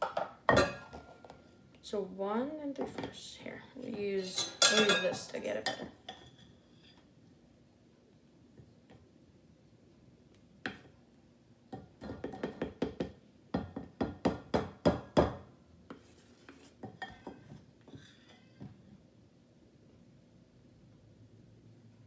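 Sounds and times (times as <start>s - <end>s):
spoon scraping in flour canister: 15.9s - 18.6s.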